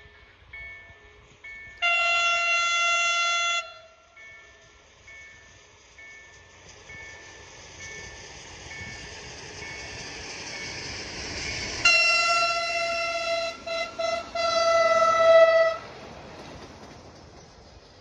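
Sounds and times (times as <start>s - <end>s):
train running noise: 0.0s - 18.0s
train horn blast: 1.8s - 4.2s, 11.8s - 15.9s.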